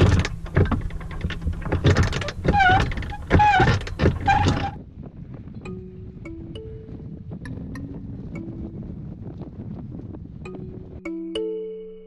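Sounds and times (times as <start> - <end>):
anchor chain clanking: 0.0 - 4.8
short squeaks: 0.0 - 4.8
motor hum: 0.0 - 4.9.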